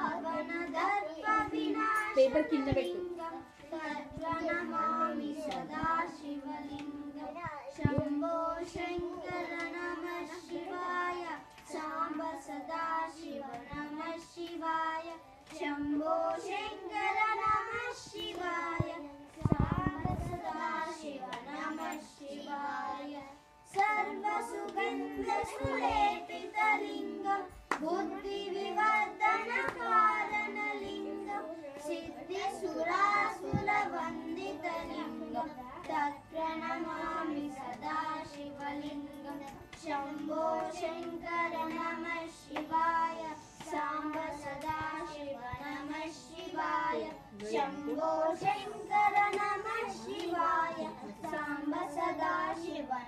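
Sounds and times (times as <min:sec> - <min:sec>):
children singing devotional song: 0:00.0 - 0:53.0
hand claps: 0:05.4 - 0:07.0, 0:08.9 - 0:12.3, 0:13.5 - 0:16.6, 0:23.7 - 0:26.9, 0:27.6 - 0:31.1, 0:35.8 - 0:46.2, 0:47.0 - 0:52.7.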